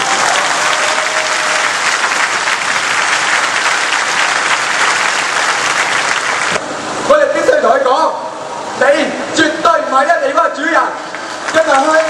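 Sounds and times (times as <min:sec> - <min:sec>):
large crowd applauding: 0:00.0 - 0:06.6, 0:11.1 - 0:12.0.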